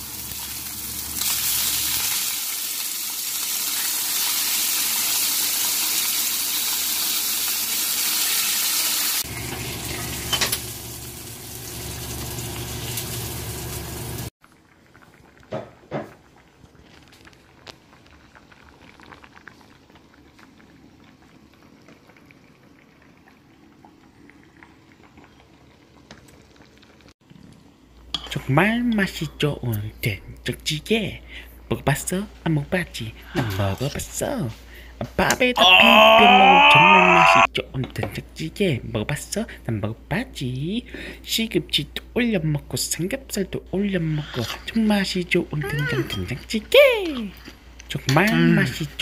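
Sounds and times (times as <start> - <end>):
pork sizzling in a pan: 0.0 - 14.3.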